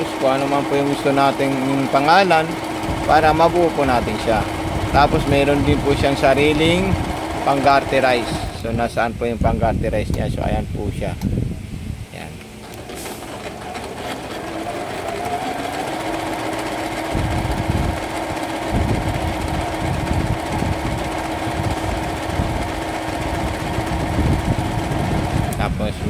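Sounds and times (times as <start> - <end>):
sewing machine motor hum: 0.0 - 8.7, 12.4 - 26.0
needle chattering: 12.6 - 25.6.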